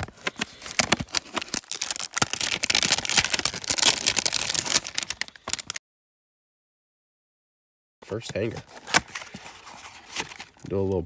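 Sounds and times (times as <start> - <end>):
cardboard box being opened: 0.0 - 5.2
plastic wrapper crackling: 0.0 - 5.8.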